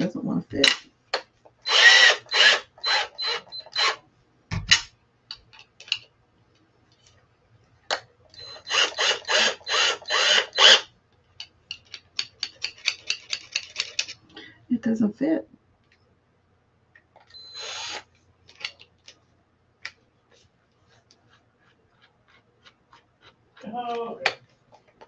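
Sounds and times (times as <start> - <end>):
drill chuck ratcheting clicks: 1.6 - 4.0, 8.4 - 10.8.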